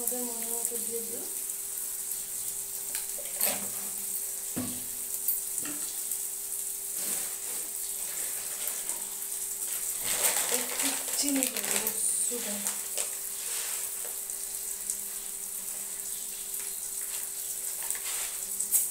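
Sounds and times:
masala sizzling in oil: 0.0 - 18.9
utensils knocking and tapping: 4.6 - 5.9.

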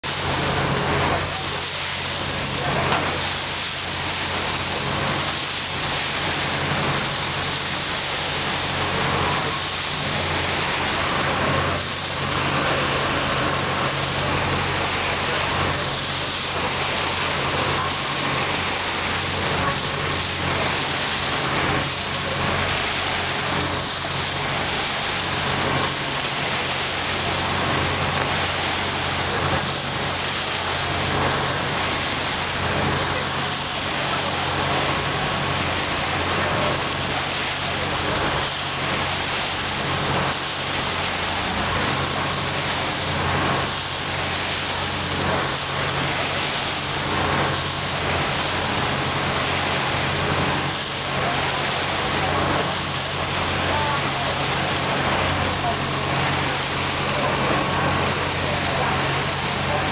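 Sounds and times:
boat engine drone: 0.0 - 59.9
water churning along hull: 0.0 - 59.9.

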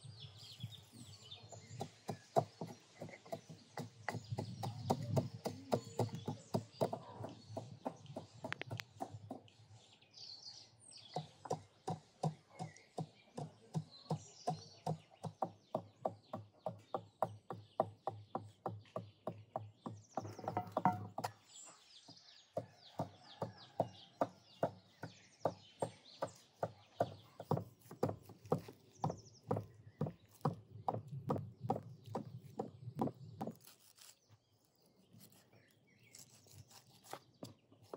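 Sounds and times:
birds chirping: 0.0 - 37.9
steady knocking: 19.3 - 21.3.

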